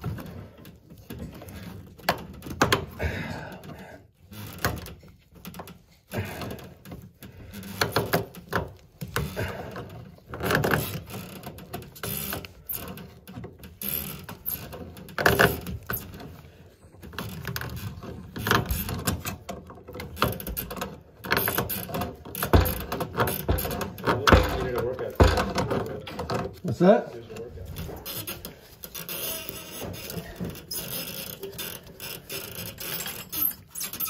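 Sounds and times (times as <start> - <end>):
pipe wrench scraping metal: 28.0 - 34.0.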